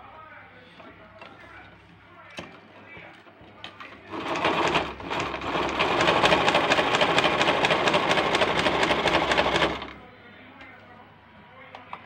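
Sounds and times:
sewing machine stitching: 3.9s - 10.0s.

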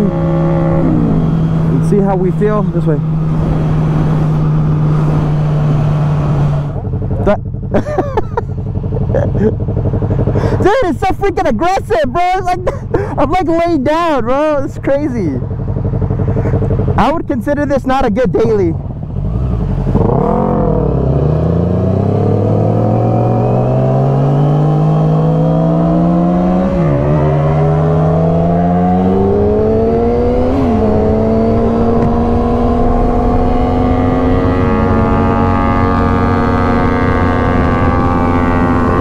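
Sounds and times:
motorcycle engine accelerating: 0.0s - 39.0s.

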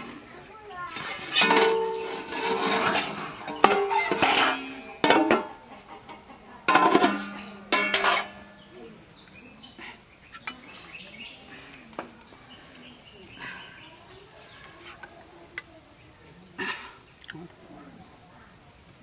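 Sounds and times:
faint bird chirps: 8.5s - 16.4s.

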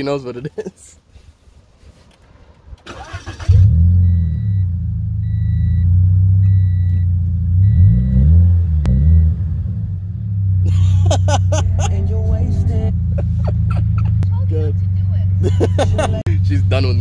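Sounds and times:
car engine starting and revving: 2.8s - 17.0s
car warning chime beeping: 4.0s - 8.3s.

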